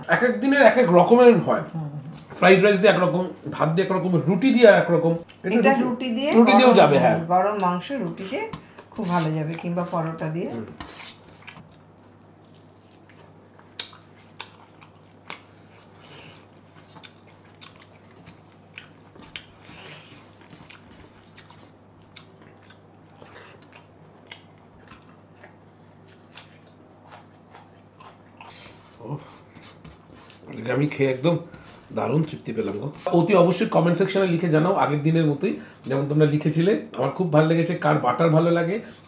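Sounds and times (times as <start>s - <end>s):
chewing and mouth sounds: 11.4s - 30.6s.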